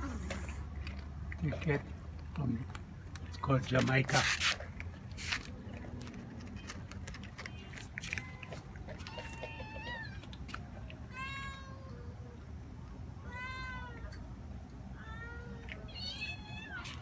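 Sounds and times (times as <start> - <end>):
cats meowing: 5.5 - 12.6, 13.2 - 14.2, 15.0 - 17.0.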